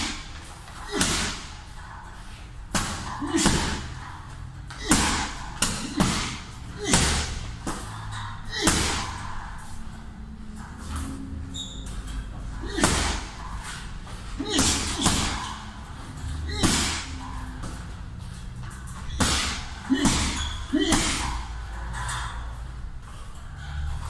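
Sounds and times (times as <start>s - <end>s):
punches thudding on heavy bag: 0.0s - 1.7s, 2.6s - 4.0s, 4.7s - 7.9s, 8.5s - 9.2s, 12.6s - 17.9s, 18.9s - 21.5s.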